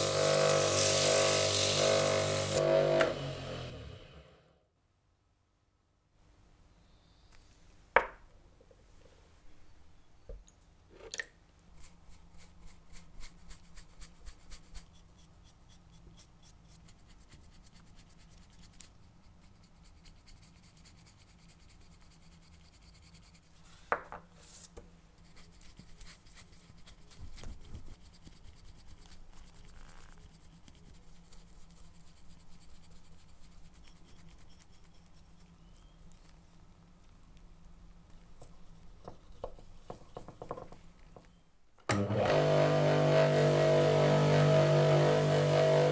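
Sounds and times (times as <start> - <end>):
brush stroking on wood: 11.8 - 36.7.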